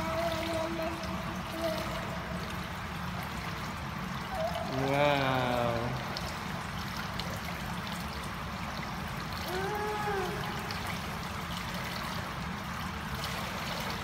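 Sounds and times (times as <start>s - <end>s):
pool water lapping: 0.0s - 14.0s
person's voice: 4.6s - 6.0s.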